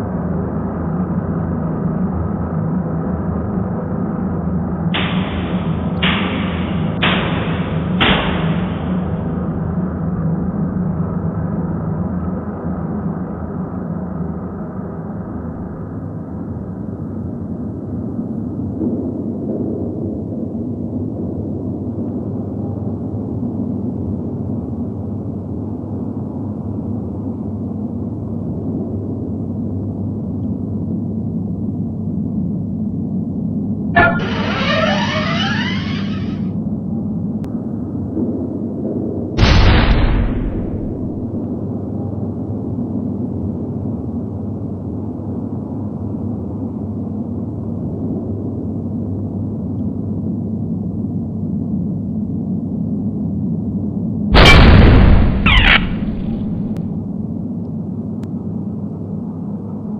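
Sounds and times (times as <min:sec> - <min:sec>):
low rumbling drone: 0:34.0 - 0:37.0, 0:39.4 - 0:41.8.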